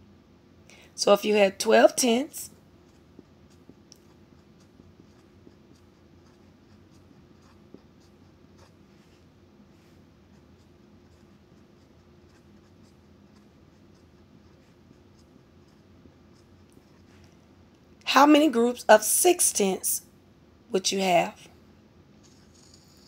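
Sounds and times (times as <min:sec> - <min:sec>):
low steady background hum: 0:00.0 - 0:23.0
marker writing on board: 0:02.9 - 0:09.1.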